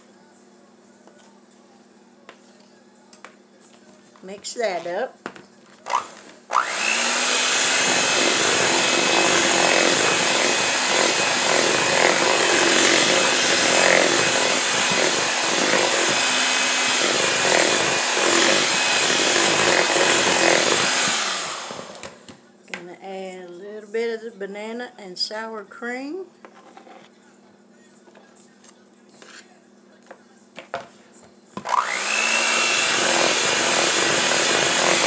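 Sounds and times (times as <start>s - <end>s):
electric hand mixer whirring: 5.9s - 22.3s, 31.6s - 35.0s.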